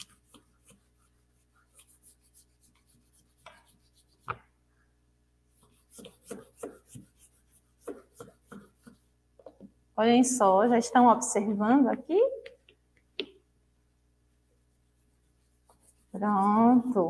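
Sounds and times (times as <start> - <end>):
crayon rubbing on paper: 0.0 - 4.3, 5.6 - 9.1, 14.7 - 17.0.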